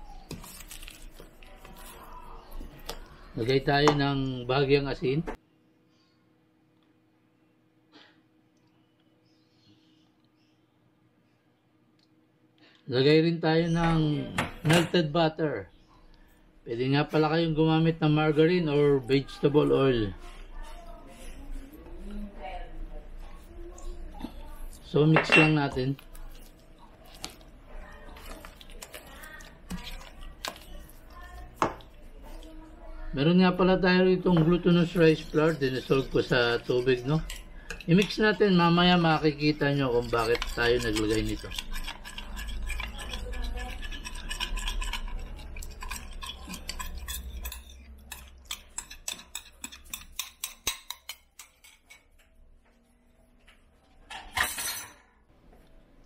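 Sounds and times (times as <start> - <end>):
spatula stirring thick paste: 0.0 - 4.8, 16.9 - 53.9
spatula scraping glass bowl: 34.0 - 52.2.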